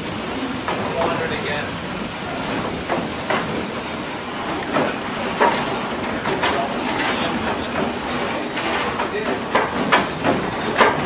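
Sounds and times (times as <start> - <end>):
sawmill machinery rattling rumble: 0.0 - 11.0
sharp knocks and clacks: 2.5 - 3.9, 4.5 - 11.0.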